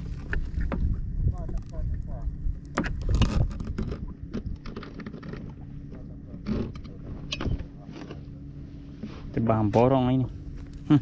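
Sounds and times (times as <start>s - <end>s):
clicks and rattles on kayak: 0.0s - 8.4s
low rumble of wind and water: 0.0s - 11.0s.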